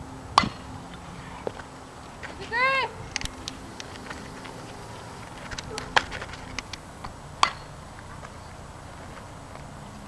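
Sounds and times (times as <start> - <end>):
softball striking bat or glove: 0.4 - 0.6, 7.0 - 7.7.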